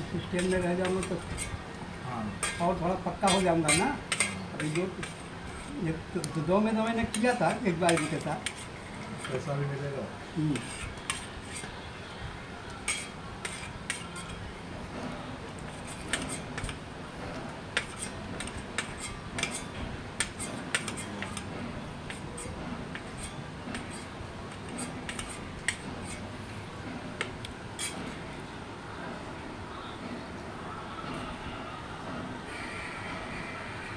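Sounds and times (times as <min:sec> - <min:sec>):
spoon scraping metal plate: 0:00.2 - 0:01.6, 0:02.3 - 0:05.8, 0:06.9 - 0:09.5, 0:10.4 - 0:11.7, 0:12.8 - 0:14.4, 0:15.6 - 0:16.8, 0:17.7 - 0:21.5, 0:22.1 - 0:26.3, 0:27.2 - 0:28.2.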